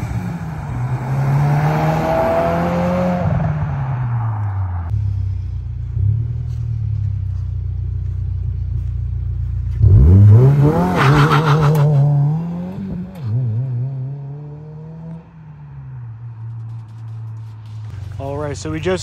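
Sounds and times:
car exhaust revving: 0:08.1 - 0:15.2.

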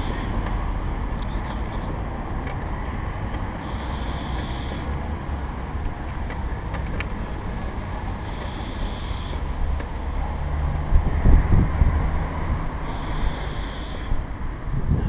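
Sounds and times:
wheels rolling on tarmac: 0:00.0 - 0:15.0
wind on microphone: 0:09.4 - 0:15.0
thin high hiss: 0:12.8 - 0:14.1.

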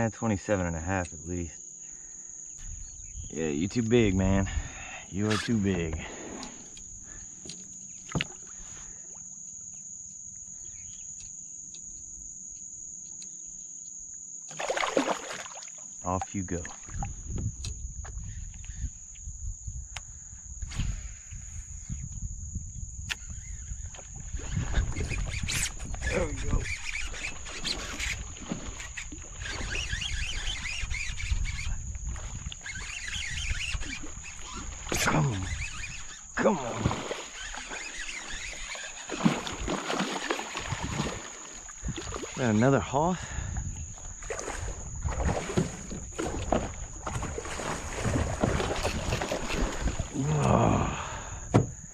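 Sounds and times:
insects droning: 0:00.0 - 0:51.9
wind: 0:00.0 - 0:51.9
birds chirping: 0:01.2 - 0:08.8, 0:09.7 - 0:11.8
water: 0:05.2 - 0:11.8, 0:14.1 - 0:19.2, 0:23.2 - 0:51.7
thin high whine: 0:20.6 - 0:43.2.

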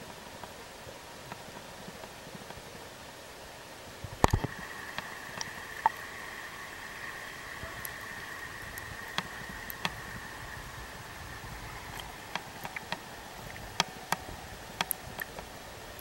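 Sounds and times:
river rushing over stones: 0:00.0 - 0:16.0
sharp clicks and ticks: 0:04.2 - 0:06.0, 0:08.6 - 0:10.6, 0:11.9 - 0:15.4.

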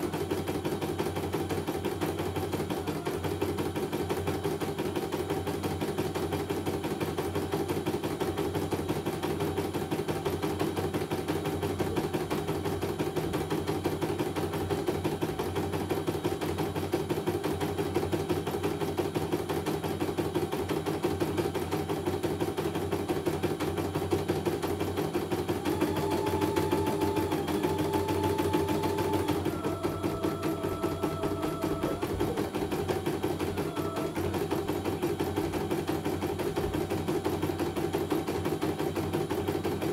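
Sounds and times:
embroidery machine needle stitching: 0:00.0 - 0:39.9
thin motor whine: 0:25.4 - 0:35.5.

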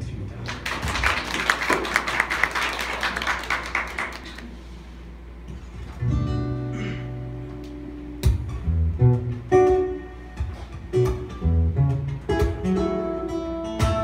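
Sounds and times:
audience applauding: 0:00.4 - 0:04.6
acoustic guitar playing: 0:05.3 - 0:14.0.

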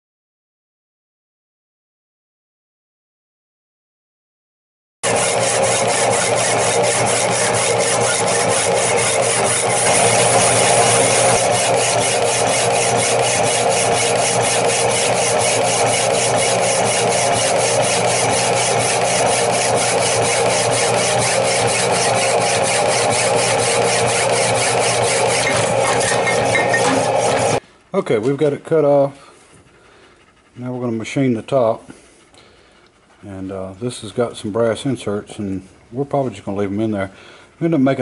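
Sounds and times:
power hacksaw cutting metal: 0:05.0 - 0:27.6.

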